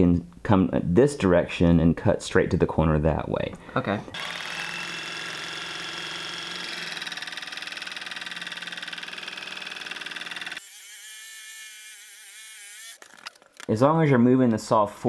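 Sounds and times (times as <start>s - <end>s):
jigsaw cutting plywood: 4.1s - 13.0s.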